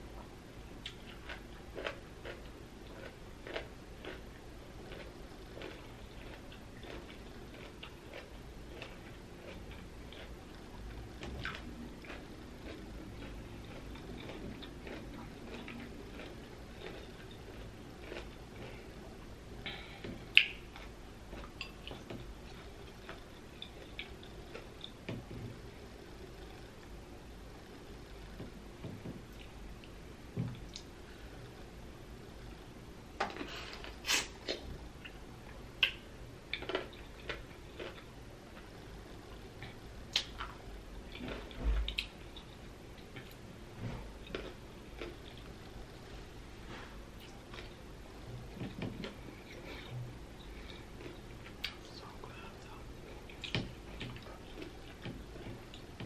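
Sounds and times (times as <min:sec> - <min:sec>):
chewing pickle crunches: 0:00.8 - 0:10.4, 0:11.2 - 0:18.8, 0:35.8 - 0:38.7.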